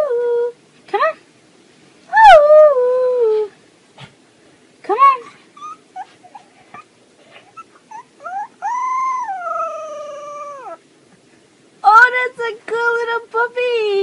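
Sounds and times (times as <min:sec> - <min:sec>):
puppy howling: 0:05.6 - 0:10.8
puppy yipping: 0:05.6 - 0:10.8
lower howling call: 0:07.9 - 0:10.8.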